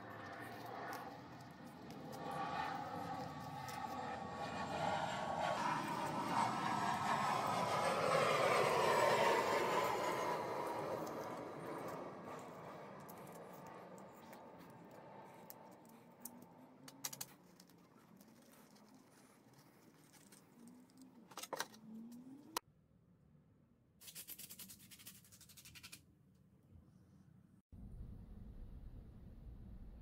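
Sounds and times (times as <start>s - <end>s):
faint metal clicks and scrapes: 0.0s - 4.2s, 11.0s - 22.2s.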